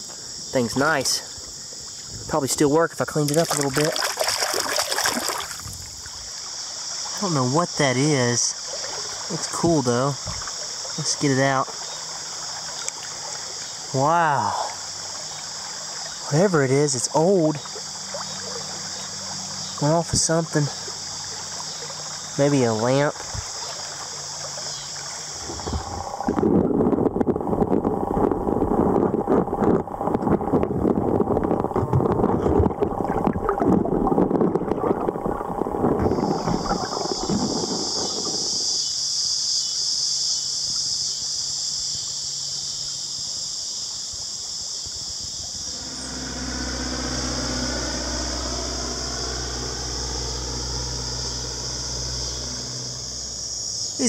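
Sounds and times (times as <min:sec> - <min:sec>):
insects chorus: 0:00.0 - 0:54.0
splashing rushing water: 0:03.1 - 0:07.6, 0:08.3 - 0:18.9
propeller airplane droning: 0:10.5 - 0:26.7, 0:45.5 - 0:54.0.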